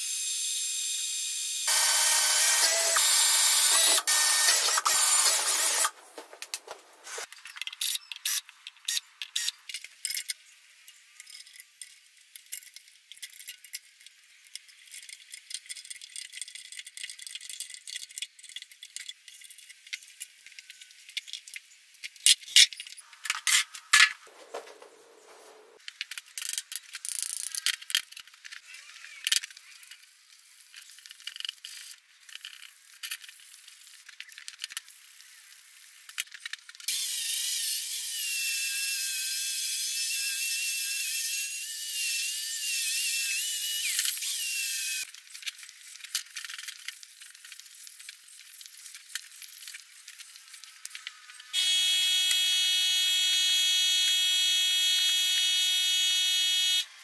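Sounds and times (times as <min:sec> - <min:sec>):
cordless drill running: 0:01.3 - 0:05.9, 0:51.6 - 0:56.9.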